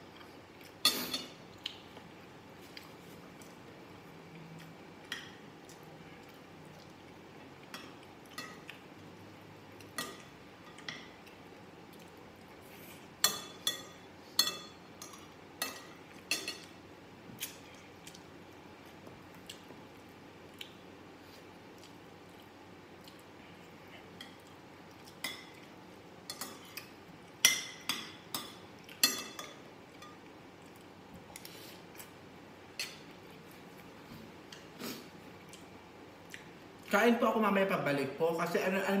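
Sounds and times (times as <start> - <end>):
metal spoon clinking on dishes: 13.2 - 16.7, 27.4 - 30.2.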